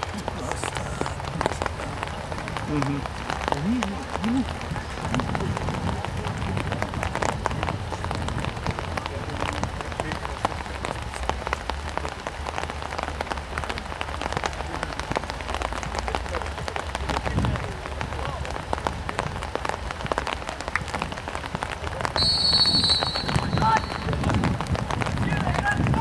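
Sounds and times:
dense crackling patter: 0.0s - 26.0s
distant shout: 22.2s - 24.3s.

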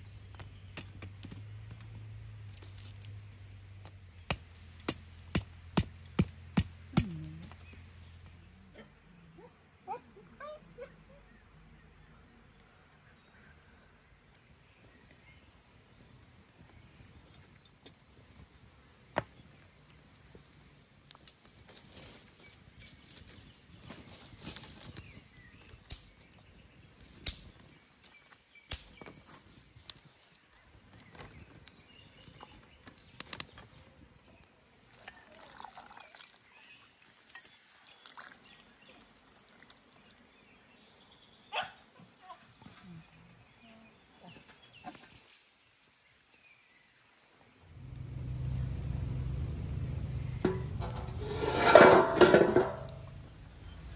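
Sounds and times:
faint outdoor background: 0.0s - 53.9s
metal tray and lid clinking: 50.4s - 53.3s.

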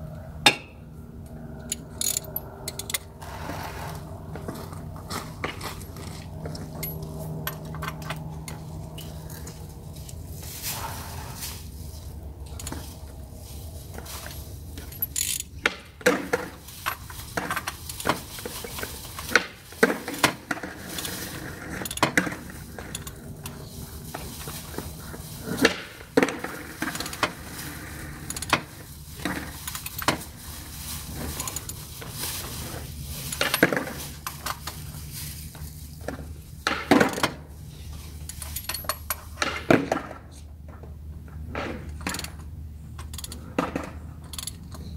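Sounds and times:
steady low hum: 0.0s - 44.9s
metal tools clinking: 1.6s - 3.1s, 5.3s - 10.2s, 13.9s - 15.6s, 33.1s - 34.8s, 38.2s - 39.2s, 44.2s - 44.9s.

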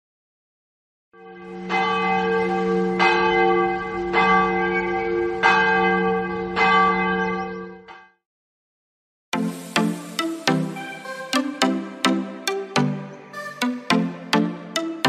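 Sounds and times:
large church bell tolling: 1.2s - 8.0s.

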